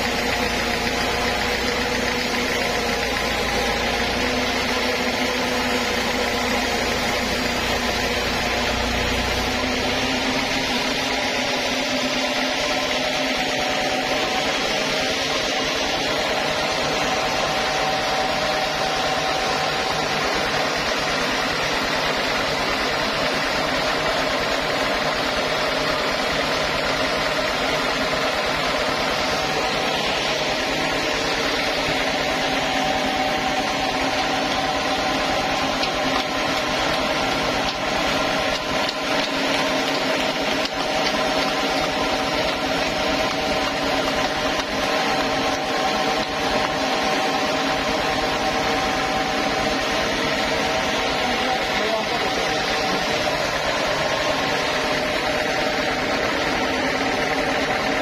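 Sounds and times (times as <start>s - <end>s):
band saw cutting wood: 0.0s - 58.0s.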